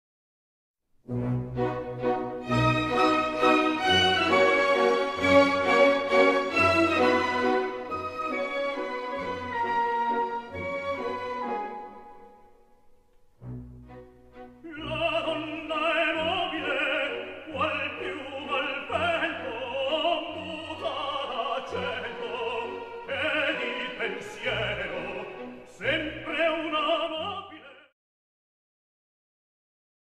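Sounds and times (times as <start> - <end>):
operatic singing over orchestra: 14.6 - 27.9.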